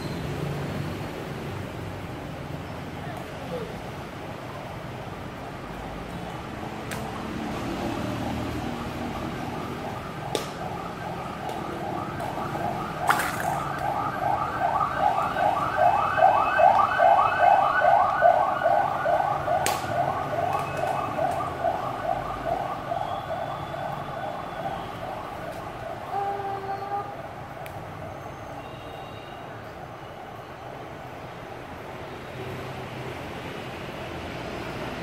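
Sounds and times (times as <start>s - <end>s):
electronic siren yelping: 7.9s - 28.8s.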